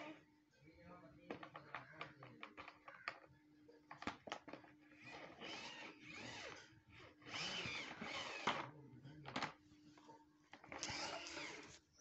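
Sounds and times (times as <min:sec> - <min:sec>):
toy van wheels whirring: 0:04.9 - 0:08.7, 0:10.6 - 0:11.9.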